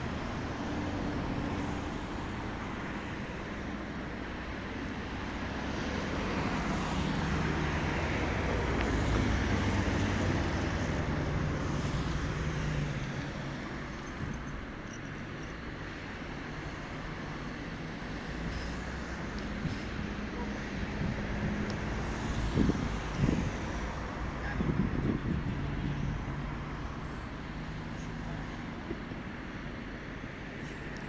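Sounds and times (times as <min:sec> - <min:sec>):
road traffic passing: 0:00.0 - 0:31.0.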